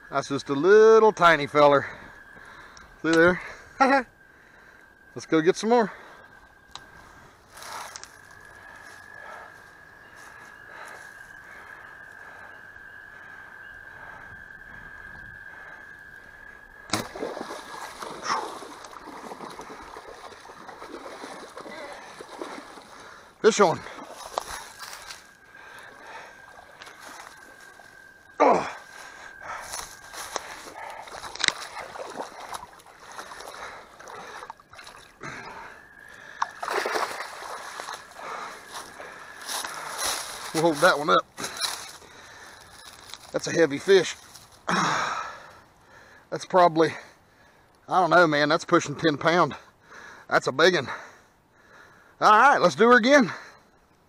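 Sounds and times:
sharp loud splash: 16.9 - 22.8, 36.4 - 38.0
fish splashing in water: 16.9 - 23.4, 29.6 - 40.4.

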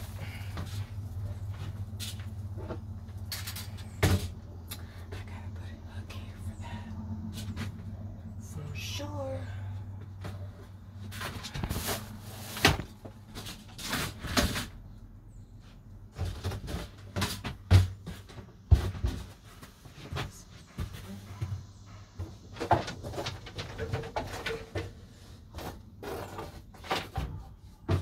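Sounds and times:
items knocking on wooden floor: 16.2 - 19.4.

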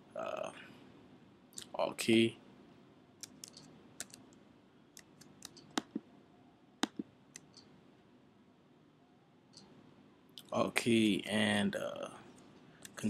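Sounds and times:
faint room hiss: 0.0 - 13.0
keyboard and mouse clicks: 3.2 - 4.4, 5.0 - 6.0, 6.8 - 7.7.

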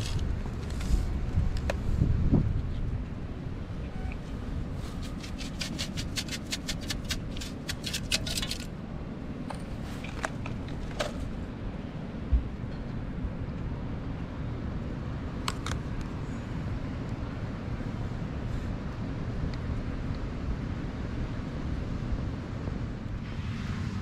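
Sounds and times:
wind rumble on microphone: 0.0 - 6.4, 7.0 - 24.0
sand scoop rattling: 4.8 - 8.7.

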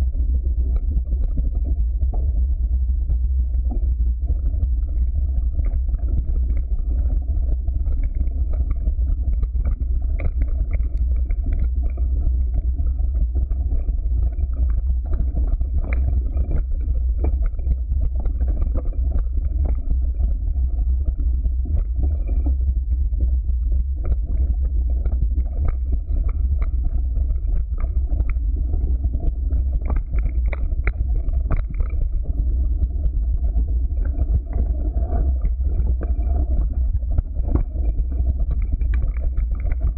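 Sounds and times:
wind and ride vibration rumble: 0.0 - 39.9.

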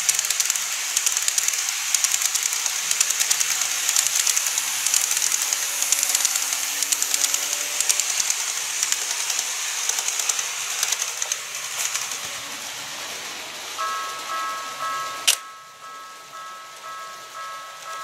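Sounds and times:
clicking over rail joints: 0.0 - 15.4
model train wheels and motor hissing: 0.0 - 18.0.

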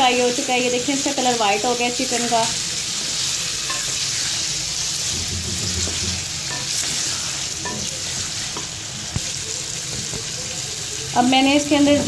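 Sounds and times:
chicken sizzling in hot oil: 0.0 - 12.0
wooden spatula scraping pan: 5.0 - 7.5.

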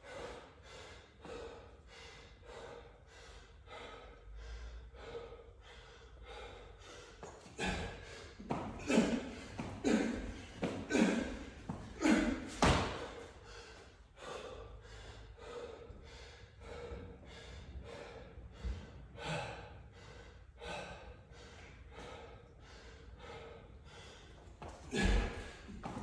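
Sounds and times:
man breathing hard: 0.0 - 26.0
man panting: 0.0 - 26.0.

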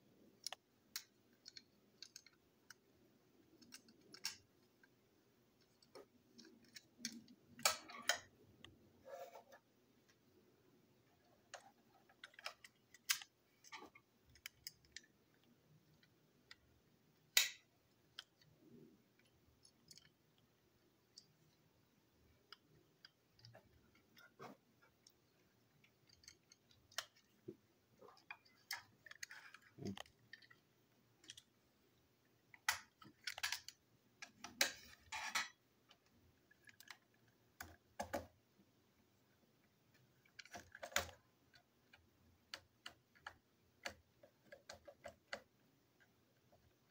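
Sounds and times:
plastic toy parts clicking: 0.4 - 5.0, 5.6 - 8.7, 11.5 - 18.5, 19.1 - 21.4, 24.9 - 27.4, 28.2 - 31.5, 32.5 - 38.3, 39.9 - 46.1.

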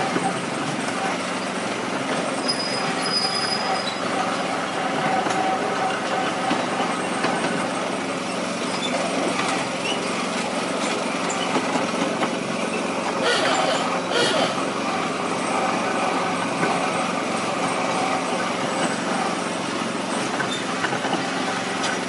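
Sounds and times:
miniature locomotive engine hum: 0.0 - 22.0
wheels clicking on rails: 0.0 - 22.0.

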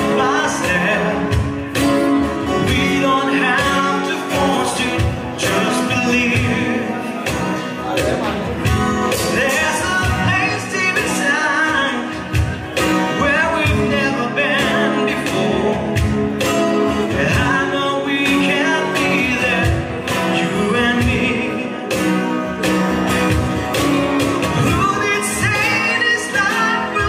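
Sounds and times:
cajon beat: 0.0 - 27.0
man singing: 0.0 - 27.0
strummed acoustic guitar: 0.0 - 27.0.

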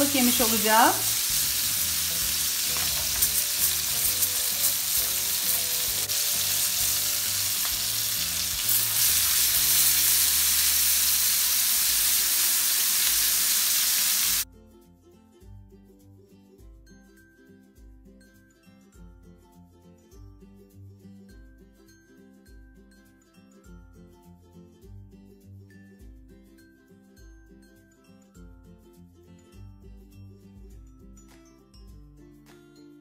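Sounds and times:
fish sizzling in hot oil: 0.0 - 14.4.

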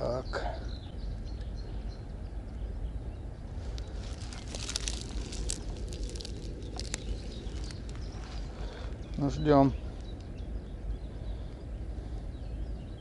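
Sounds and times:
low outdoor rumble: 0.0 - 13.0
light crackling and clicking: 3.7 - 10.4.

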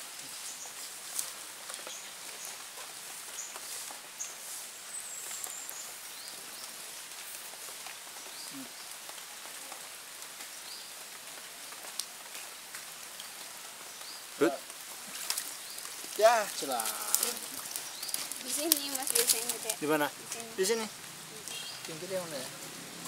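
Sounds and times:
pattering and splashing on water: 11.1 - 23.0.

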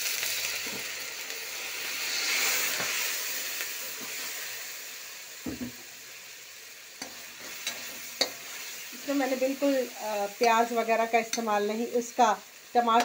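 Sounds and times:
masala sizzling in a pan: 0.0 - 13.0
knock on the pan: 5.4 - 5.8.

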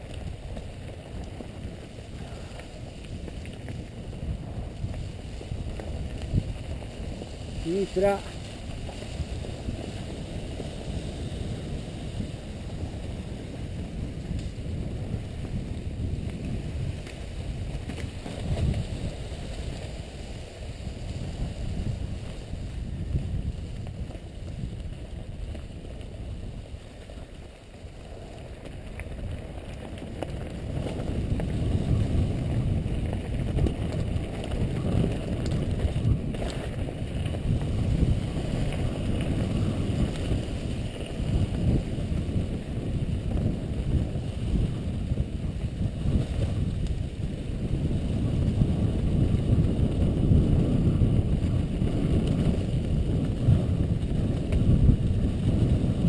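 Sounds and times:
bike tyres rolling over leaves: 0.0 - 56.0
wind buffeting microphone: 0.0 - 56.0.

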